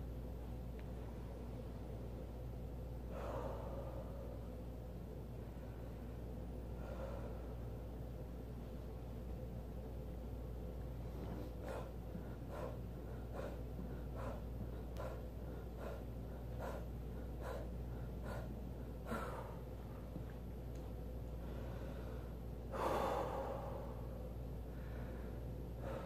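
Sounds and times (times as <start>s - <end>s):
man breathing hard: 3.0s - 4.6s, 6.6s - 7.7s, 11.2s - 19.9s, 21.4s - 26.0s.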